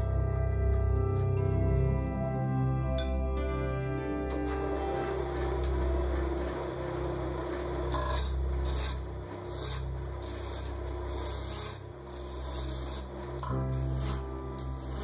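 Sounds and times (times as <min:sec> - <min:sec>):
lathe humming: 0:00.0 - 0:15.0
gouge scraping spinning wood: 0:04.3 - 0:15.0.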